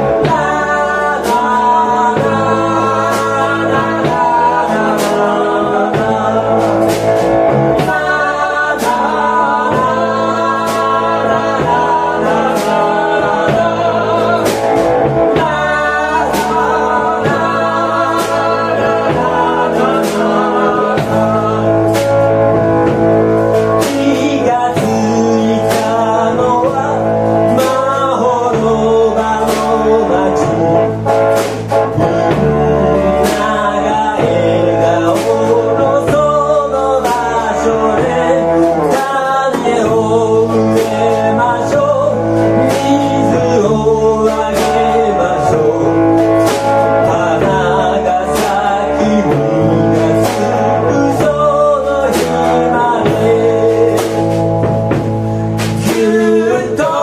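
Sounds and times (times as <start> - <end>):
bass guitar: 0.0 - 57.0
drum kit and cymbal hits: 0.0 - 57.0
men singing: 0.0 - 57.0.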